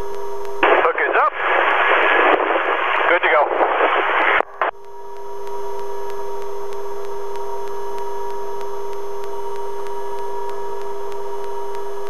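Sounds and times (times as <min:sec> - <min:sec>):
helicopter droning in flight: 0:04.2 - 0:12.0.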